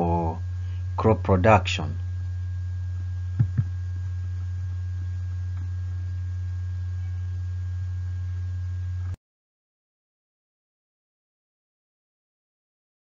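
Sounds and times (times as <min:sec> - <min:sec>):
low electrical hum: 0:00.0 - 0:09.2.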